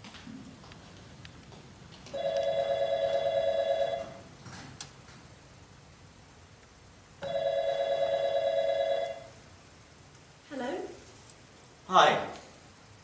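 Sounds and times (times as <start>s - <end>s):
telephone ringing: 2.1s - 4.3s, 7.2s - 9.4s.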